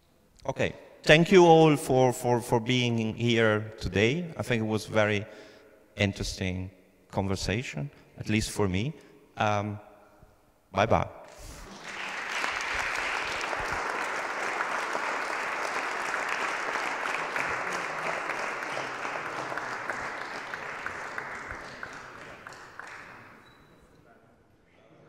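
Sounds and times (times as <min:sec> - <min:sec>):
audience applauding: 0:11.6 - 0:23.7.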